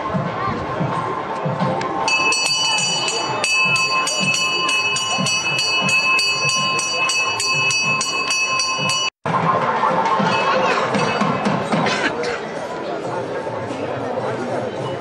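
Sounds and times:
murmur of voices: 0.0s - 15.0s
hand bell ringing rapidly: 2.1s - 9.2s.

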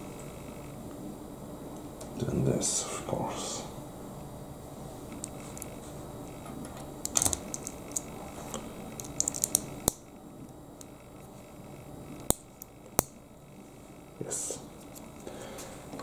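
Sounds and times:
plastic toy parts clicking: 9.0s - 10.0s.

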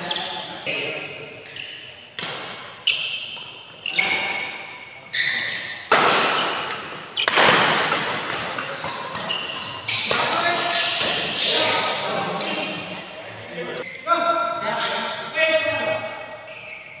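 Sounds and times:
rackets striking shuttlecock: 5.7s - 11.4s.

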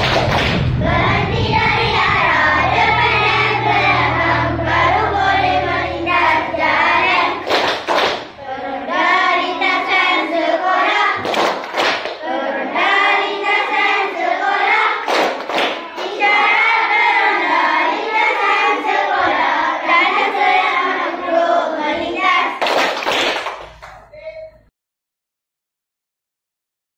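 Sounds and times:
children singing in unison: 0.0s - 22.8s
hand claps: 7.4s - 8.3s, 11.2s - 12.2s, 15.0s - 16.2s, 22.6s - 24.1s.

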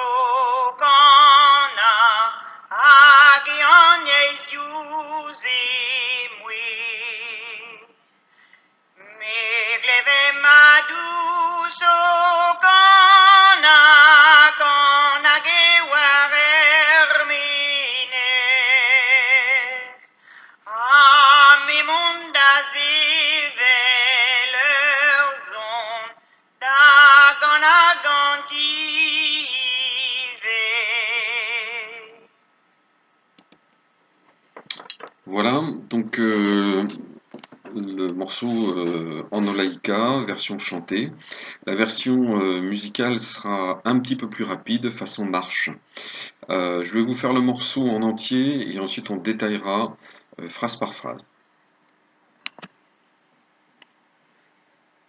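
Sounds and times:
woman singing unaccompanied: 0.0s - 7.9s, 9.0s - 20.0s, 20.7s - 32.3s.

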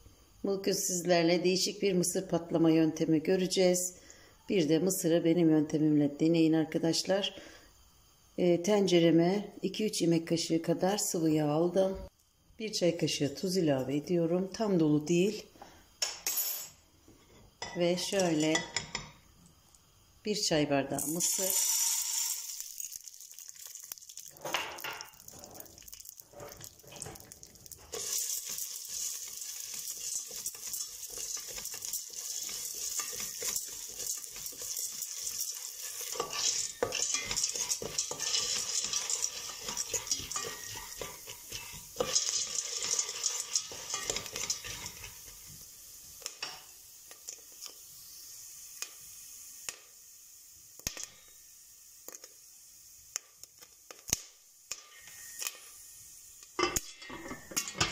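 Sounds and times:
oil sizzling: 17.0s - 57.9s
spoon stirring kernels in pot: 20.9s - 47.8s
popcorn popping: 21.0s - 45.6s, 50.8s - 51.3s, 53.1s - 55.6s.

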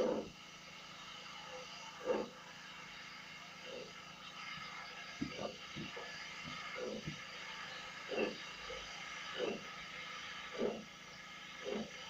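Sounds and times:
steam locomotive chuff: 0.0s - 0.3s, 5.3s - 9.7s, 10.5s - 10.9s, 11.6s - 12.0s.

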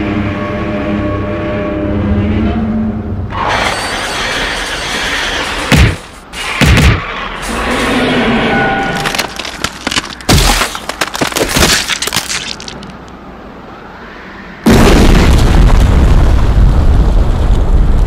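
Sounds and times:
crash with breaking debris: 8.9s - 12.8s
rumbling crash: 14.6s - 18.0s.

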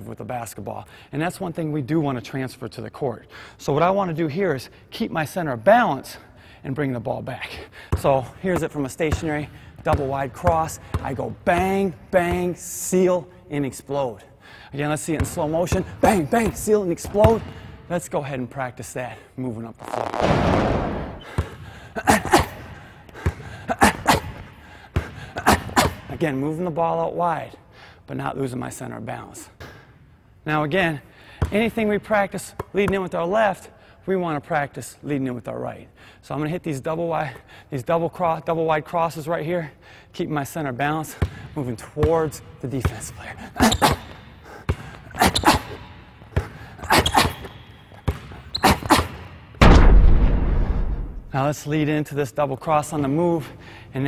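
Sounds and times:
basketball bouncing on court floor: 7.9s - 12.6s, 15.1s - 17.7s, 20.4s - 26.1s, 41.1s - 49.8s
loud low boom: 20.2s - 21.3s, 49.6s - 51.3s.

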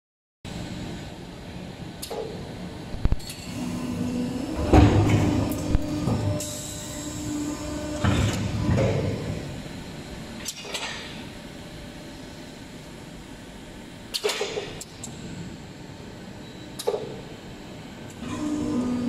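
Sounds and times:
machine hum: 0.5s - 19.0s
machine clicks: 14.1s - 15.1s.

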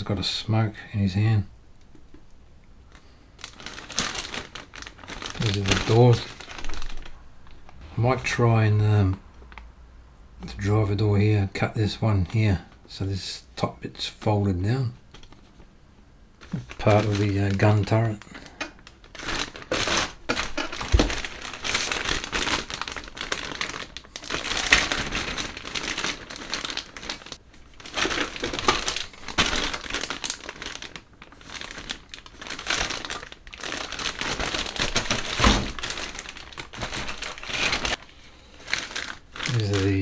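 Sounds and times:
plastic bags crinkling: 2.9s - 9.6s, 16.4s - 40.0s.

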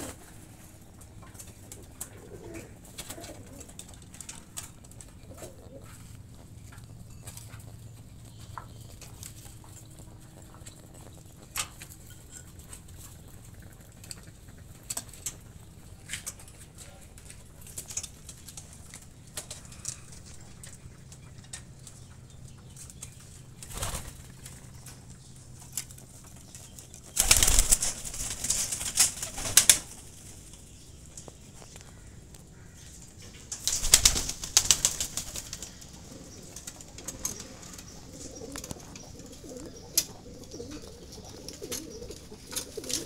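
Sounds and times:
pigeon wings flapping: 23.6s - 24.6s, 25.9s - 30.2s, 33.5s - 38.9s, 39.5s - 43.0s.

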